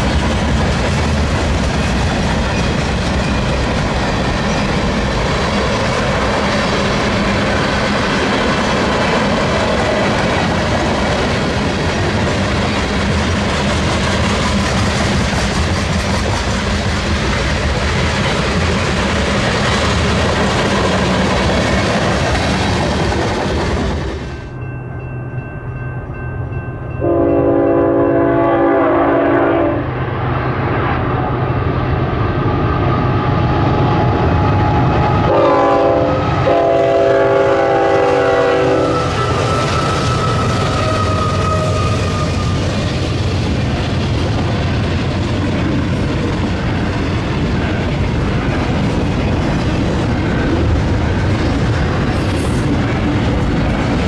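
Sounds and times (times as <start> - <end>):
train wheel and rail noise: 0.0 - 54.0
locomotive horn chord: 27.0 - 29.9, 35.3 - 39.1.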